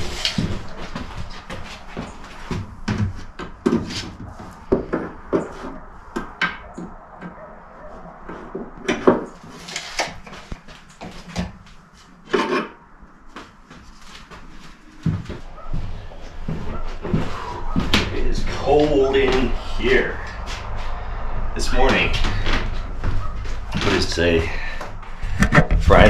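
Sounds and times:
knocks and scraping on wood: 0.0s - 12.8s, 21.9s - 26.0s.

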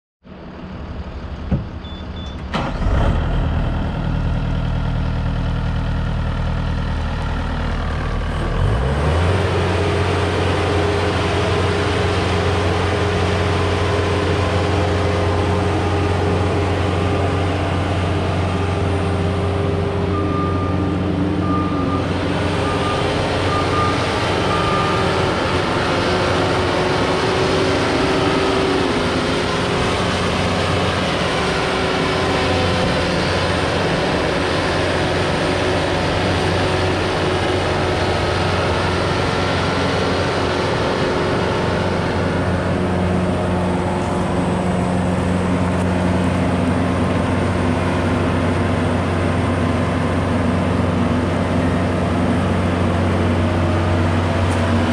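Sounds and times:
diesel engine revving: 0.7s - 54.9s
short high beeps: 1.8s - 2.4s.

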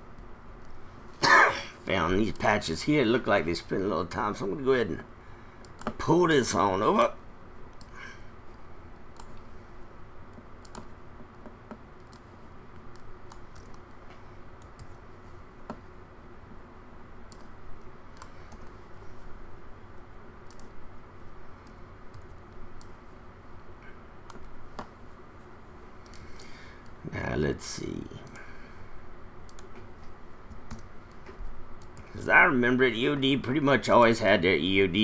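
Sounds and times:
faint steady hum: 0.0s - 35.0s
keyboard and mouse clicks: 5.6s - 6.0s, 9.1s - 9.4s, 10.3s - 13.8s, 17.3s - 17.5s, 20.4s - 20.8s, 29.4s - 29.9s, 30.5s - 32.1s.

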